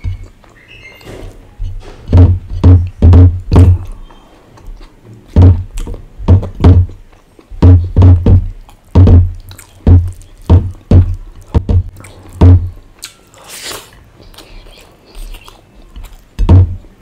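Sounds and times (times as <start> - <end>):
chewing: 0.0 - 3.0, 3.7 - 6.1, 6.9 - 7.6, 8.4 - 17.0
wet thuds of hand mixing food: 1.2 - 3.9, 5.3 - 7.0, 7.6 - 12.8, 16.4 - 16.9.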